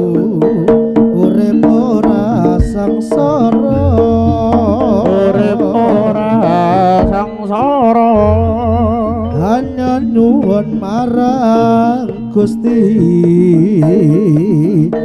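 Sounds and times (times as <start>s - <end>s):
drums: 0.0s - 15.0s
wavering sliding melody: 0.0s - 15.0s
gong-like tones: 3.6s - 6.3s.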